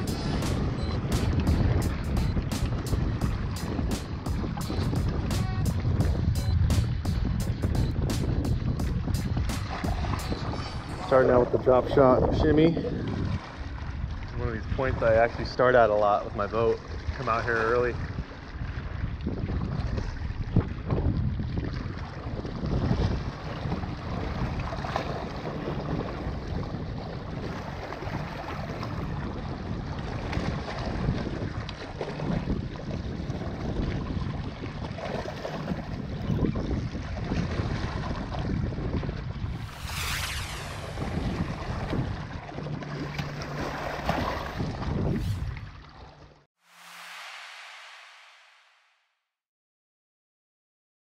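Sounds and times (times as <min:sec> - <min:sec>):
wind buffeting microphone: 0:00.0 - 0:46.1
waves lapping against rocks: 0:09.6 - 0:38.5
brief whoosh: 0:39.4 - 0:44.1, 0:46.6 - 0:49.2.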